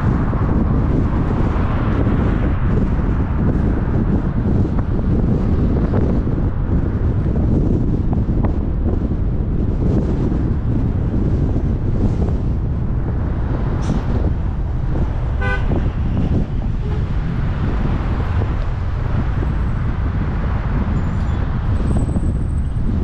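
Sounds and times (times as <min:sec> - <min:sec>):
car road and wind rumble: 0:00.0 - 0:23.0
car horn toot: 0:15.4 - 0:16.0.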